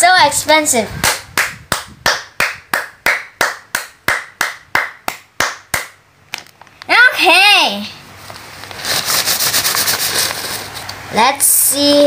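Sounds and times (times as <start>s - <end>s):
hand claps: 1.0s - 6.0s.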